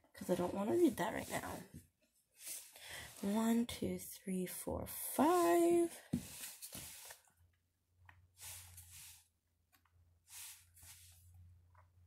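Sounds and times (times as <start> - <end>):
playing cards swishing: 6.2 - 7.2, 8.4 - 9.2, 10.3 - 11.2.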